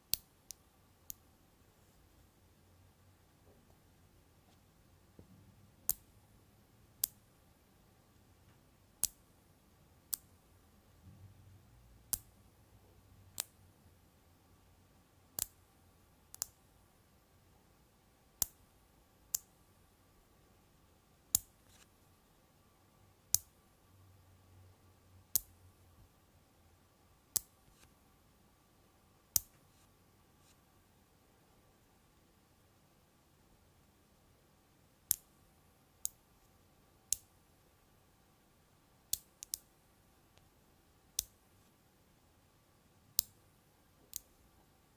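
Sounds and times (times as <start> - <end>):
magnet balls snapping clicks: 39.1 - 39.7.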